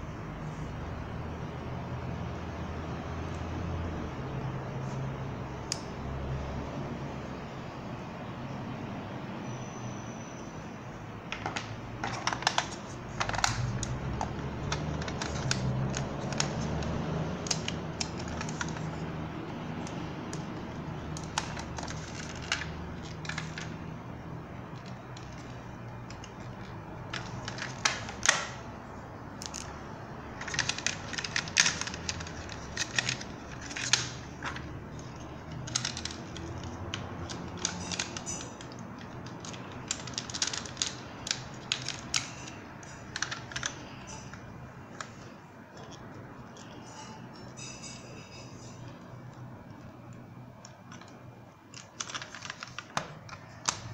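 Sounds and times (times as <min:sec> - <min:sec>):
plastic toy clicking and snapping: 0:30.4 - 0:45.1, 0:50.1 - 0:53.9.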